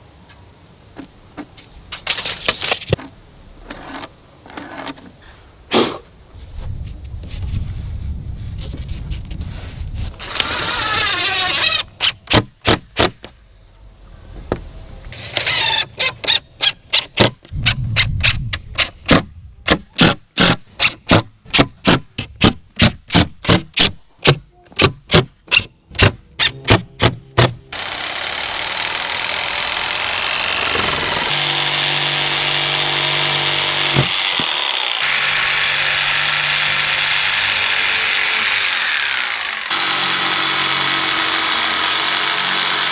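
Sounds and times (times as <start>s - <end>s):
impact driver driving screws: 18.8s - 35.4s
jigsaw cutting boards: 26.0s - 42.9s.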